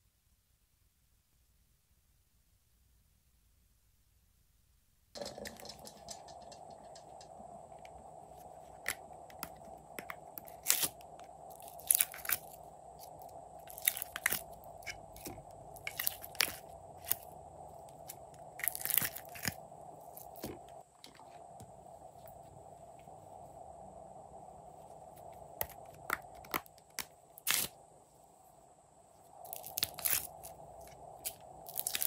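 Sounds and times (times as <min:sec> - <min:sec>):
plastic crackling and crinkling: 0:05.2 - 0:21.4, 0:25.6 - 0:27.8, 0:29.4 - 0:32.0.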